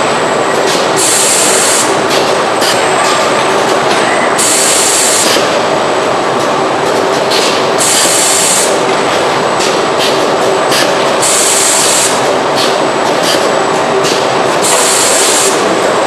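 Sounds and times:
compressed air hissing: 1.0 - 2.0, 4.4 - 5.4, 7.8 - 8.8, 10.7 - 12.7, 14.6 - 15.7.

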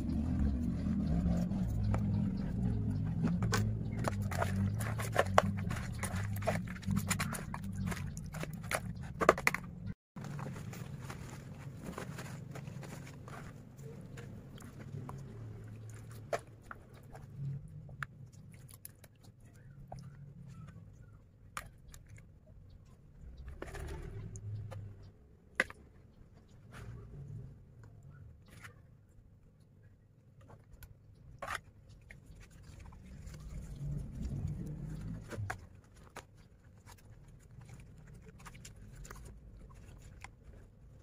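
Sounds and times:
low hum: 0.0 - 16.2.

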